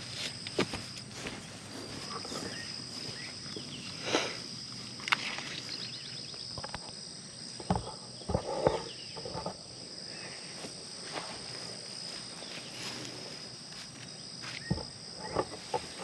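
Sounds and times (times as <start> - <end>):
rustles and knocks of plants: 0.0 - 6.8, 10.5 - 16.0
insect chorus drone: 0.0 - 16.0.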